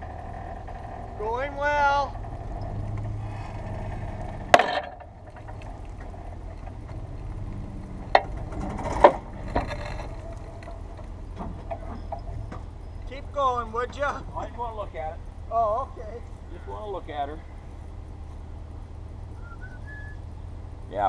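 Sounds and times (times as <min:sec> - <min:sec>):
chain clanking: 0:00.0 - 0:14.6
vehicle engine running: 0:00.0 - 0:21.0.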